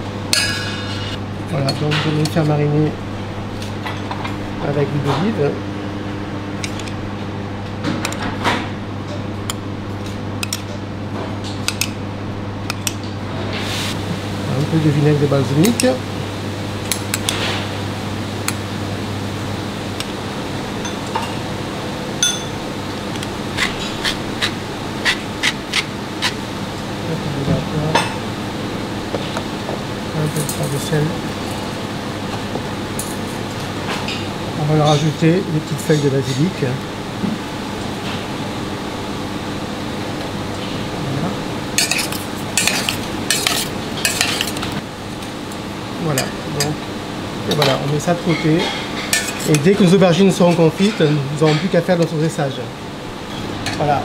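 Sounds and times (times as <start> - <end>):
steady background hum: 0.0 - 54.0
spoon clinking on steel bowls: 22.2 - 22.6.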